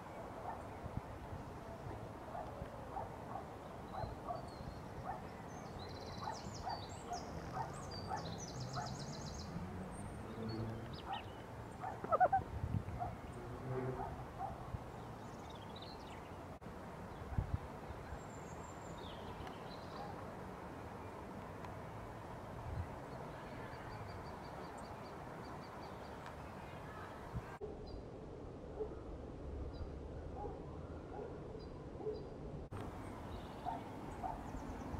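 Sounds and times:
short repeated bird calls: 0:11.0 - 0:12.4
low animal calls: 0:11.8 - 0:12.5
songbird trilling: 0:12.0 - 0:12.4.

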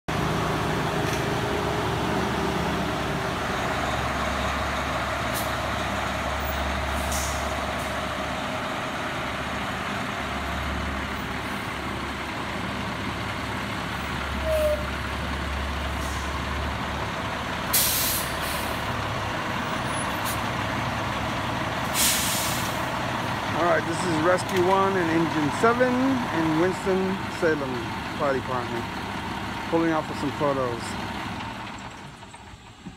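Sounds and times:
truck diesel engines rumbling: 0:00.1 - 0:32.9
air brake hisses: 0:17.7 - 0:18.7, 0:21.9 - 0:22.8.

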